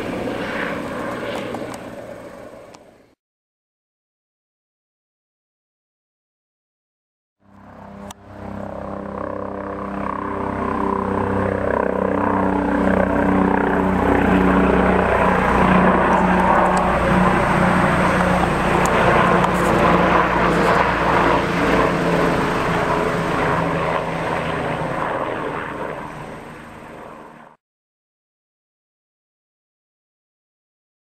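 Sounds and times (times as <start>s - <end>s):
helicopter flying overhead: 0.0s - 3.2s, 7.4s - 27.6s.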